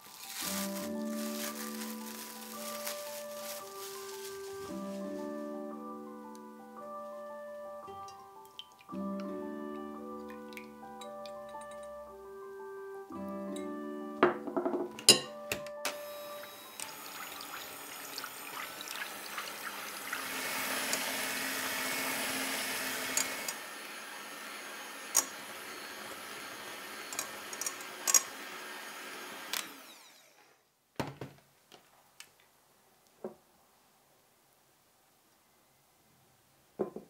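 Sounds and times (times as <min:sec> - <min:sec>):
electric hand mixer whirring: 0:15.9 - 0:30.5.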